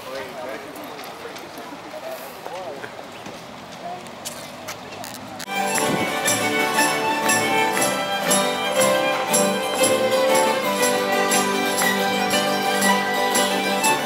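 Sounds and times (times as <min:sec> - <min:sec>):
acoustic guitar: 0:05.4 - 0:14.0
fiddle: 0:05.4 - 0:14.0
hammered dulcimer: 0:05.5 - 0:14.0.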